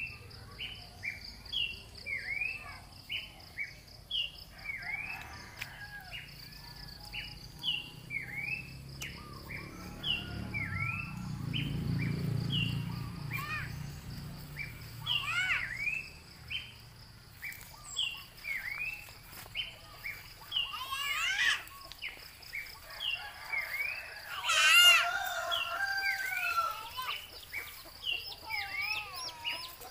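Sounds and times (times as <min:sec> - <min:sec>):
high chirping calls: 0:07.0 - 0:29.9.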